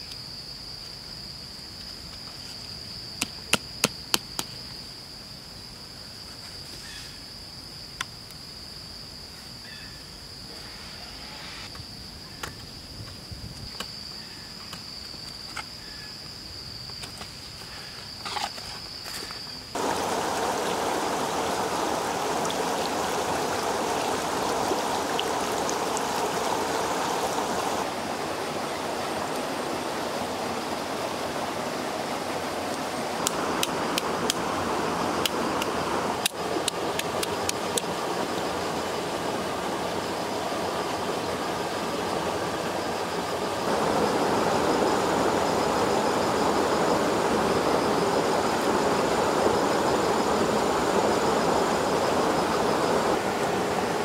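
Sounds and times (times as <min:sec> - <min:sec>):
insects droning: 0:00.0 - 0:54.0
stream running over rocks: 0:19.7 - 0:54.0.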